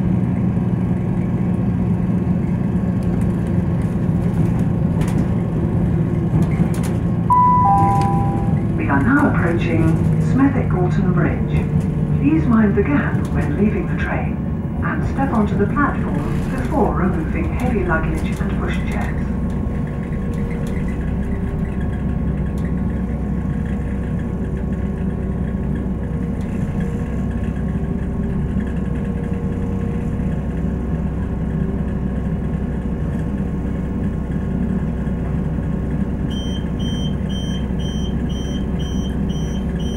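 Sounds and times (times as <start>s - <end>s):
train diesel engine running: 0.0s - 39.9s
rapid high door beeps: 7.3s - 8.7s, 36.3s - 39.9s.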